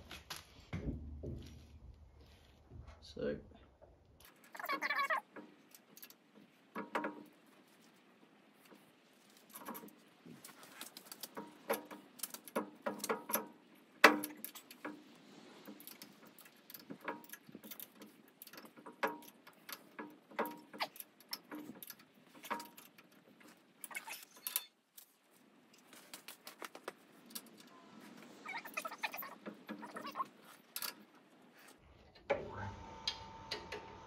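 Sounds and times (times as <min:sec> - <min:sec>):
small metallic clicks and taps: 0:04.2 - 0:07.9, 0:08.6 - 0:25.1.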